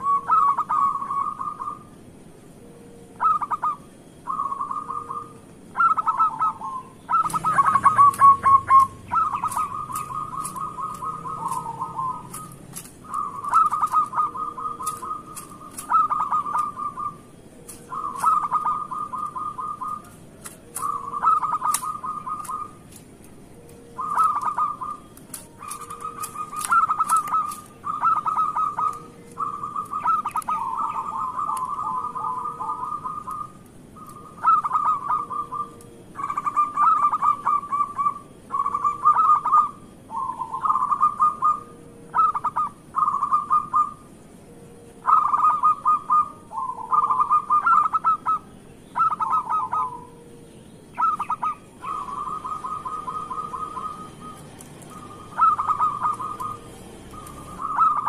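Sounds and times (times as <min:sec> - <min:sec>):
dove cooing in trills: 0:00.0 - 0:58.0
sharp clicks: 0:07.2 - 0:14.2, 0:14.8 - 0:16.8, 0:20.0 - 0:28.0.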